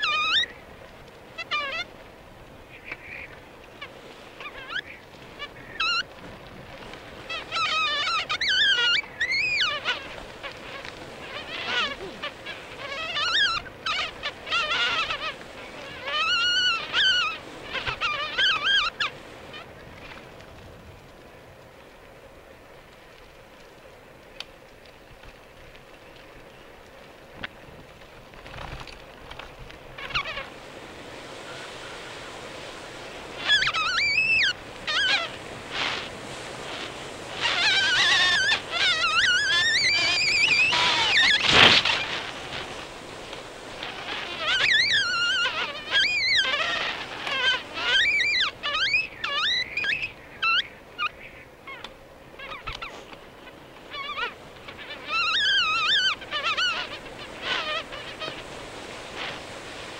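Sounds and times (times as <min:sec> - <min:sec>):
bicycle brakes squealing: 0:00.0 - 0:00.5, 0:07.4 - 0:09.9, 0:33.4 - 0:36.0, 0:37.3 - 0:42.8, 0:44.0 - 0:50.7, 0:55.0 - 0:58.3
tyres rolling on forest path: 0:00.0 - 0:17.8, 0:18.6 - 0:59.9.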